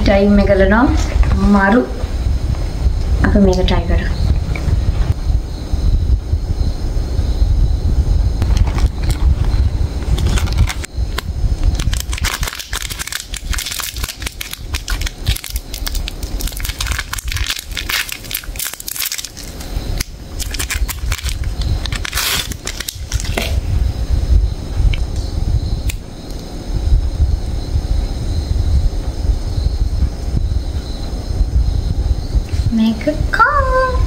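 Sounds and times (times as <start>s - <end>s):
plastic wrapper crinkling: 10.0s - 23.6s.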